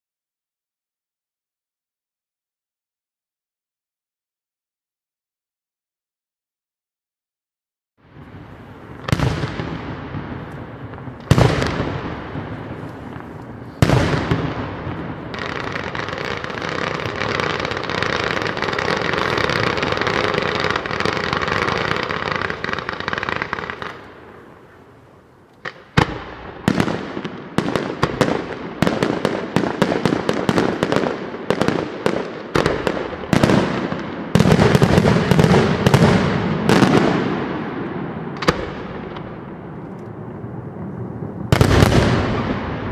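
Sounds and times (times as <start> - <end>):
fireworks crackling hiss: 8.0 - 39.5
fireworks bangs: 8.0 - 42.9
rapid sharp firework bangs: 8.8 - 24.0, 25.6 - 39.5, 41.4 - 42.9.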